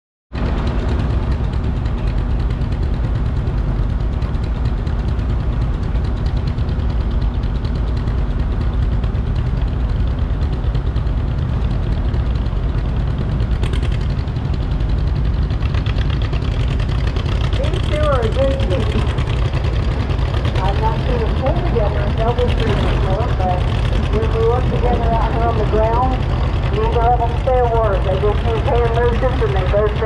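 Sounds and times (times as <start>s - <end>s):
tractor engine idling: 0.4s - 30.0s.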